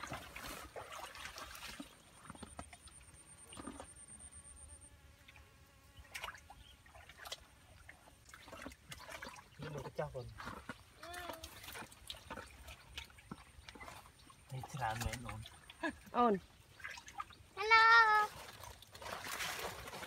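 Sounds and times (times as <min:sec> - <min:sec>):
soft splashes in shallow water: 0:00.0 - 0:04.1, 0:05.2 - 0:20.0.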